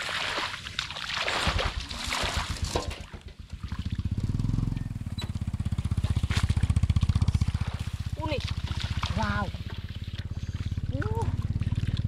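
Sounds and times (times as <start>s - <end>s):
water splashing and sloshing: 0.0s - 12.0s
small engine puttering: 2.8s - 12.0s.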